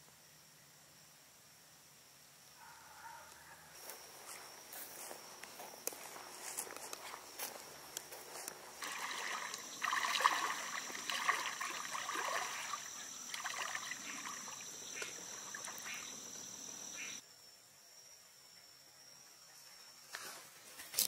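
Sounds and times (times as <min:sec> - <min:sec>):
boots wading through water: 0:06.4 - 0:16.1.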